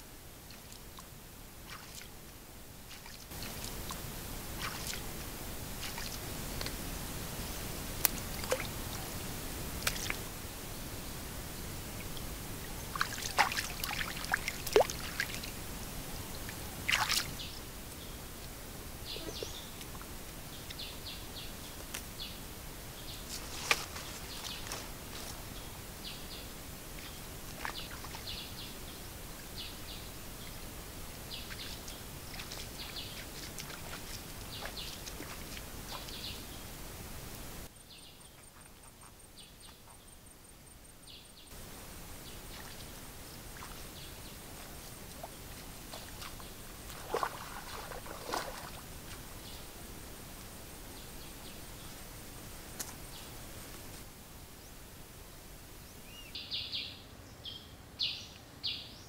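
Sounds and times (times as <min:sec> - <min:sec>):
steady background hiss: 0:00.0 - 0:59.0
small birds chirping: 0:02.9 - 0:05.1, 0:16.2 - 0:36.8, 0:37.6 - 0:49.8.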